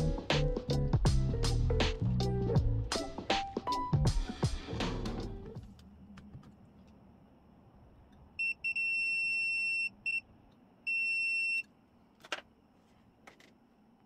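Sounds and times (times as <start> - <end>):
multimeter continuity beep: 8.4 - 10.3, 10.9 - 11.7.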